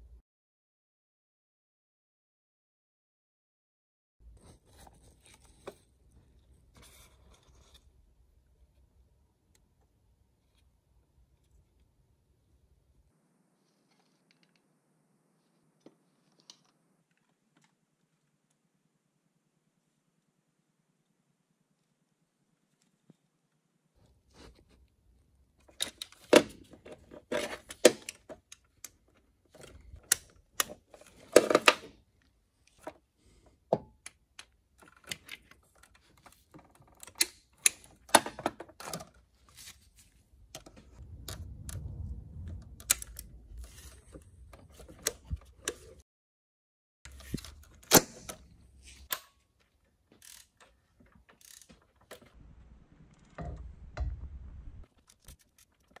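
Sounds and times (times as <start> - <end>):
low rumbling: 40.7 - 44.6, 52.4 - 54.9.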